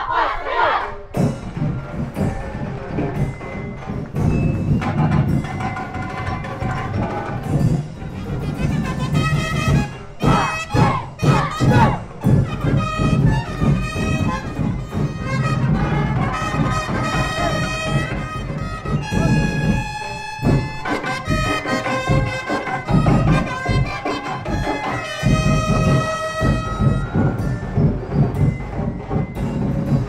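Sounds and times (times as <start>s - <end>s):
steady drum beat: 0.7s - 30.0s
brass horns playing held notes: 8.2s - 27.4s.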